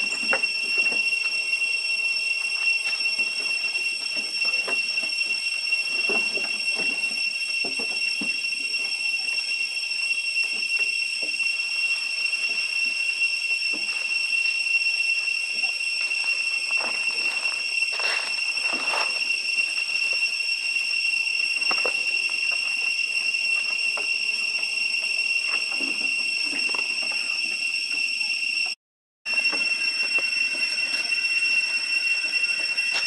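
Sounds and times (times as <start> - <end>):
cicadas droning: 0.0 - 33.0.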